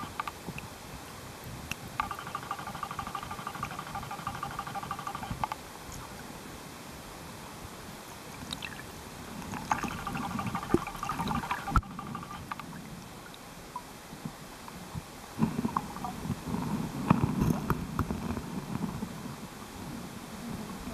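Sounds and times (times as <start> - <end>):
underwater clicks and crackles: 0.0 - 0.7, 9.4 - 14.8, 15.4 - 19.2
muffled underwater rumble and hiss: 5.2 - 20.9.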